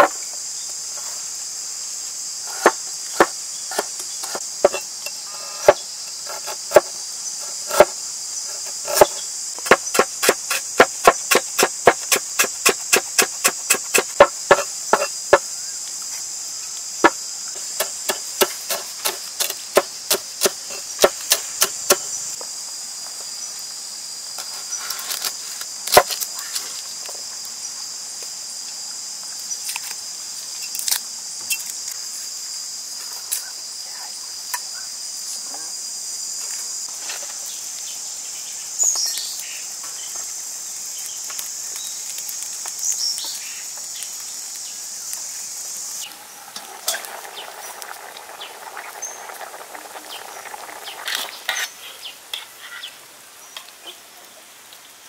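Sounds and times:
high insect drone: 0.0 - 55.0
knife chopping on wooden board: 5.6 - 15.4.

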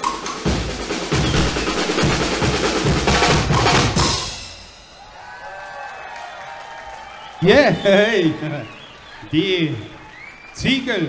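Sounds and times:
bass drums and snare drums: 0.0 - 5.1
cymbal crashes: 0.0 - 5.1.

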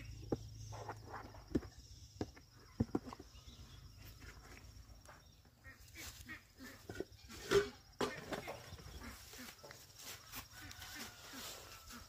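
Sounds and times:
plastic tubs knocking and rustling: 0.1 - 5.3, 6.8 - 9.0
quiet footsteps on grass: 3.9 - 7.4, 8.4 - 12.0.

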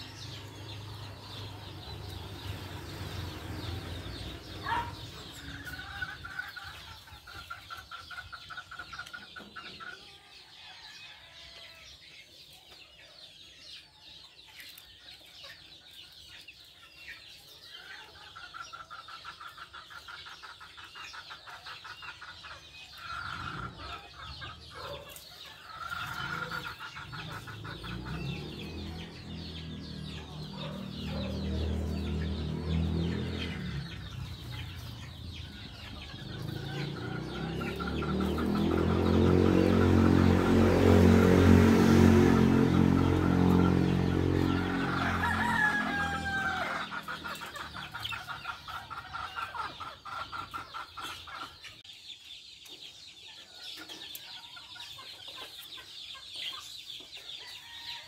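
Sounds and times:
budgerigars chirping: 0.0 - 9.0.

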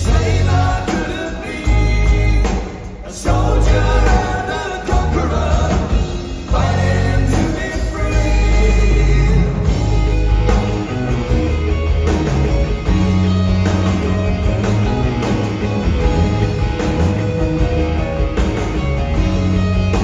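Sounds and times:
person singing: 0.0 - 10.0
live rock band: 0.0 - 20.0.

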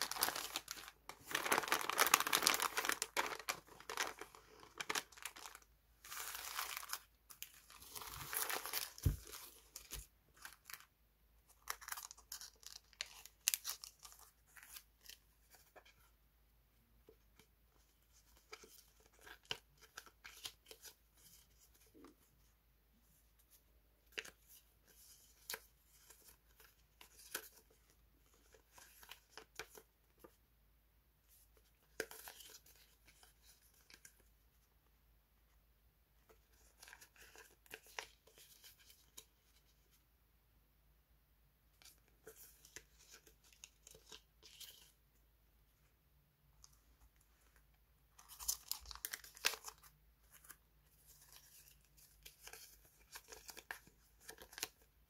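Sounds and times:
paper stickers rustling: 0.0 - 10.8
paper wrapping crinkling and tearing: 0.0 - 10.8, 48.2 - 50.5, 51.1 - 54.8.

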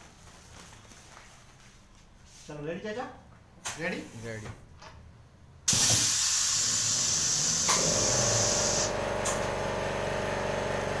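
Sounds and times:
compressed air hissing: 5.7 - 9.0.

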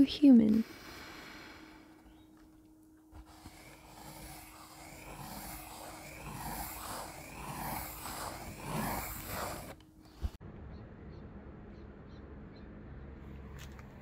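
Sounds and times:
pencil scratching on paper: 3.1 - 10.4.

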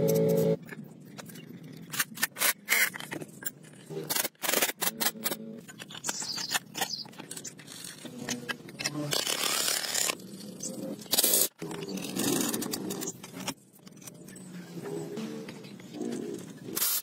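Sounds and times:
metal parts clinking and scraping: 0.6 - 15.1, 15.7 - 17.0
pneumatic impact wrench burst: 16.8 - 17.0.

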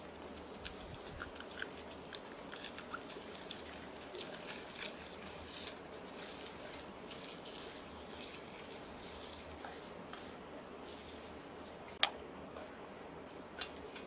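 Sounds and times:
faint bird chirps: 13.0 - 14.0.

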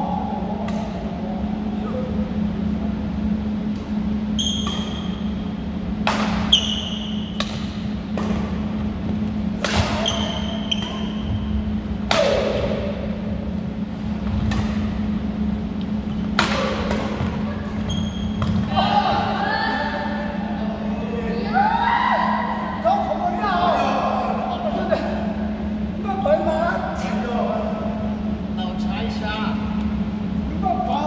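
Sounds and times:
steady low hum: 0.0 - 31.0
sneakers squeaking on wooden floor: 4.4 - 5.2, 10.0 - 11.6, 17.7 - 18.7
badminton rackets hitting shuttlecock: 6.0 - 8.6, 9.6 - 11.2, 12.0 - 12.8, 14.4 - 15.0, 16.2 - 17.5.

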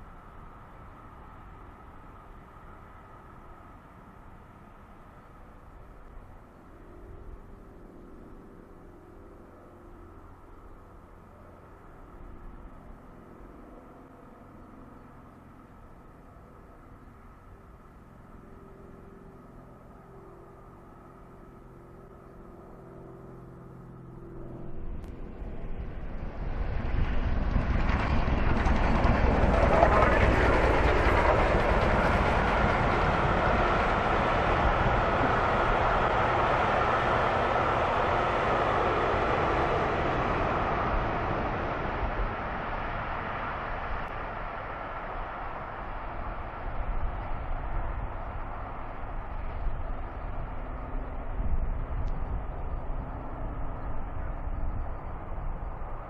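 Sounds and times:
distant train rumble: 0.0 - 56.0
faint hum: 0.0 - 56.0
rush of wind: 0.0 - 56.0
train wheels rushing on rails: 25.9 - 51.1.

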